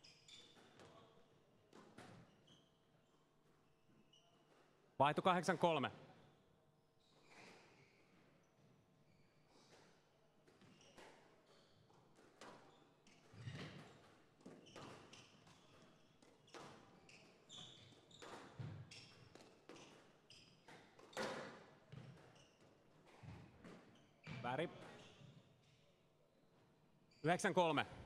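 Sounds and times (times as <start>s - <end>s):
shoe squeaks on court floor: 0.0s - 1.1s, 2.0s - 4.6s, 10.6s - 11.9s, 12.5s - 25.5s
squash ball hitting rackets and walls: 12.1s - 25.4s.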